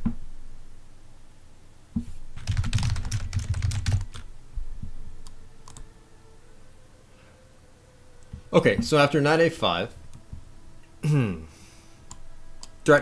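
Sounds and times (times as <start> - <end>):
typing on keyboard: 2.4 - 4.3.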